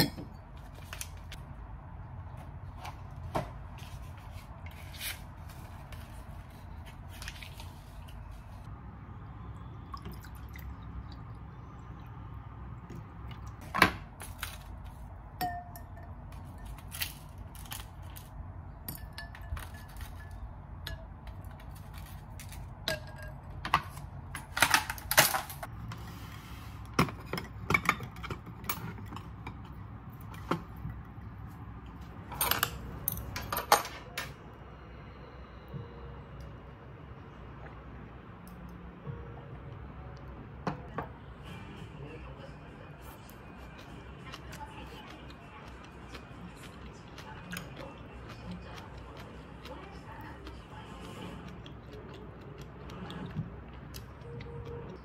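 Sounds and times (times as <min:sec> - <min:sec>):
dishes clinking: 0:00.0 - 0:00.6, 0:15.4 - 0:16.8
low steady hum: 0:00.0 - 0:55.0.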